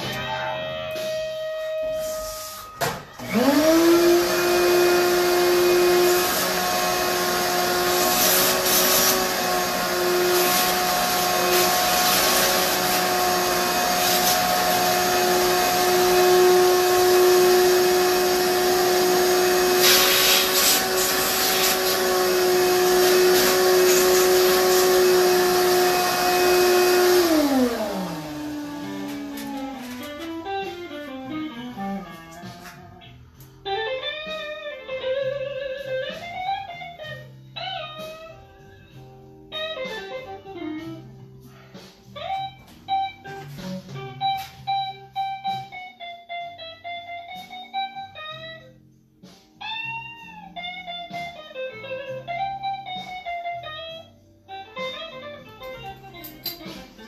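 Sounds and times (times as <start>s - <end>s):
shop vacuum running: 0.0s - 32.8s.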